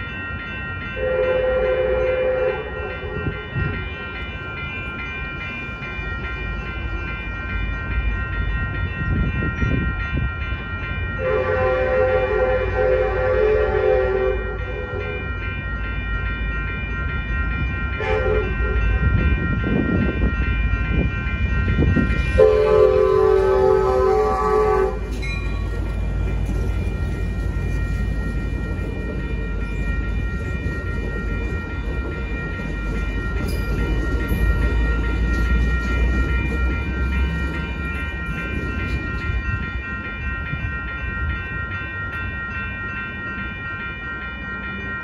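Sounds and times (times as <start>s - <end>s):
railroad crossing bell ringing: 0.0s - 45.0s
train horn blasts: 1.0s - 3.4s, 11.2s - 15.1s, 18.0s - 18.9s, 22.3s - 25.1s
locomotive rumble: 1.0s - 43.2s.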